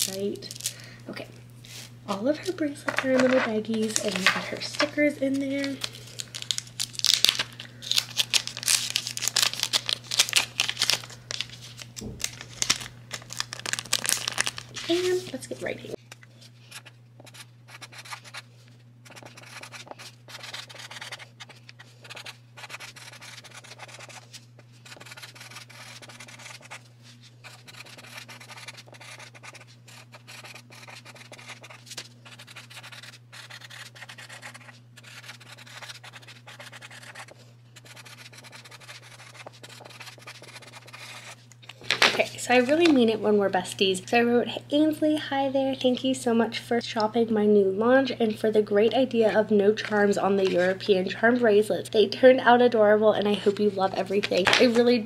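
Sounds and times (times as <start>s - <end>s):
steady low hum: 0.0s - 55.0s
felt-tip marker scratching on card: 19.0s - 24.2s, 24.8s - 26.8s, 27.4s - 41.4s.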